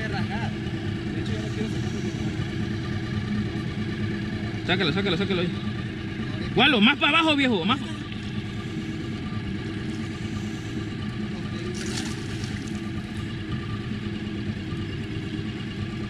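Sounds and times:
outboard motor idling: 0.0s - 16.0s
fish splashing at surface: 11.7s - 12.9s.

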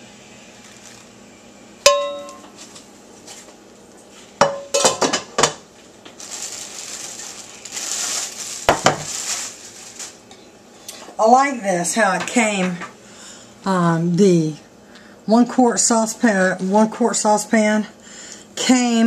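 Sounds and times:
plastic wrap crinkling: 0.6s - 1.1s, 5.8s - 10.4s
glass lid clinking on frying pan: 1.9s - 2.4s.

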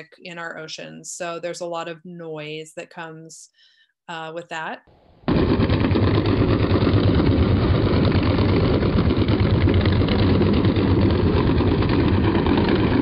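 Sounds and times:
underwater ship rumble: 5.3s - 13.0s.

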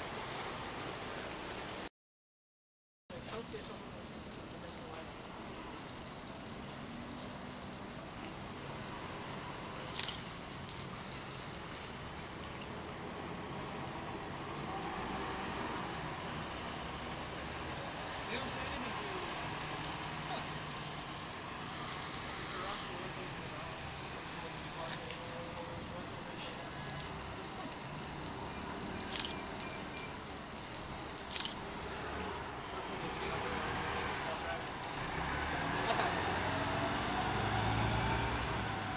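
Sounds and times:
bus engine and road noise: 3.1s - 38.9s
tyre hiss on wet pavement: 3.1s - 38.9s
bus engine driving past: 13.1s - 18.3s, 27.6s - 38.9s.

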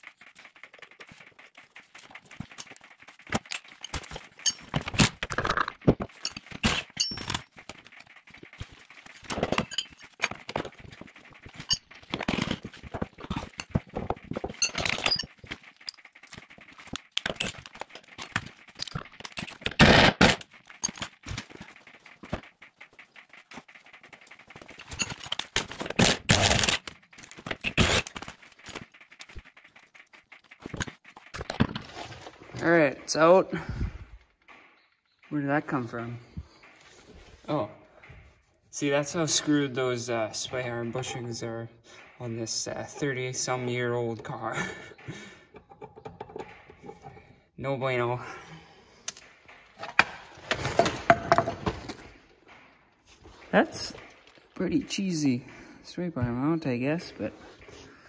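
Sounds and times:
tools clanking on metal: 2.1s - 20.0s, 38.8s - 47.5s, 49.0s - 52.2s.

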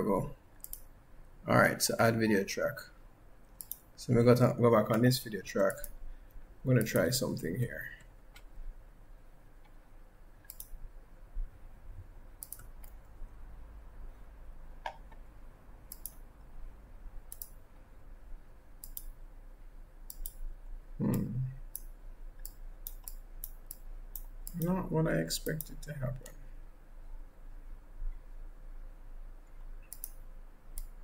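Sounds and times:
computer mouse clicking: 0.6s - 0.9s, 3.4s - 3.9s, 4.9s - 6.0s, 10.4s - 10.8s, 12.4s - 13.0s, 14.8s - 15.2s, 15.9s - 16.2s, 17.3s - 17.6s, 18.8s - 19.2s, 20.1s - 24.7s, 29.4s - 31.0s.

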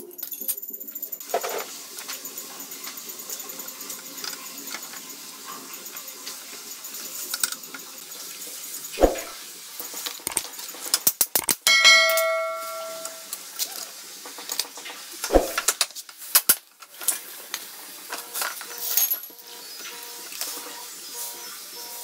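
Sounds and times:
metal tools clinking and clanking: 11.6s - 13.3s, 18.5s - 19.4s
ringing metal clang: 11.7s - 13.3s.

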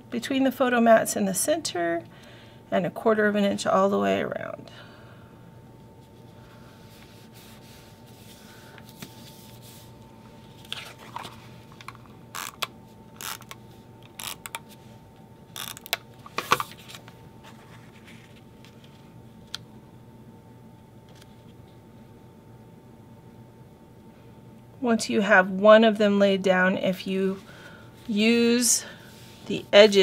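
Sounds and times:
faint steady hum: 0.0s - 30.0s
paper handling: 6.8s - 12.7s, 15.7s - 19.6s.

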